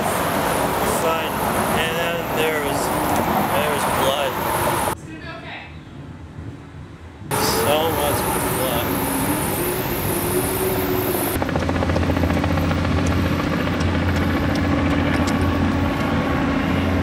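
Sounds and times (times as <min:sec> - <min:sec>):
rough outdoor noise: 0:00.0 - 0:17.0
low mechanical drone: 0:06.1 - 0:17.0.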